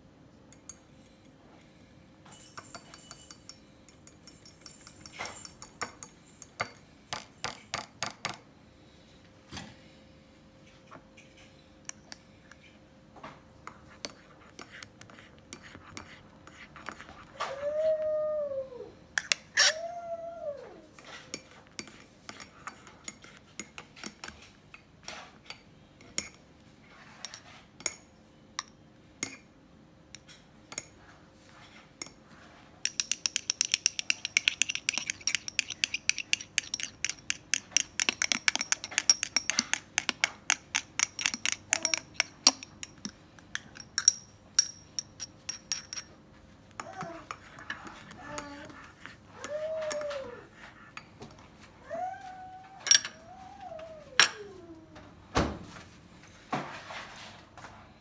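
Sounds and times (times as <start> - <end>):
spoon clinking against mug and glass: 2.3 - 7.9, 32.9 - 46.1
dog howling: 17.4 - 19.0, 19.6 - 21.0, 49.4 - 50.5.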